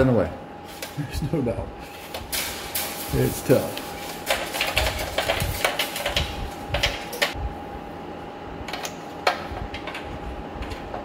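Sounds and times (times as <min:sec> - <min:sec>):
wire rattling against metal: 0:01.8 - 0:07.4.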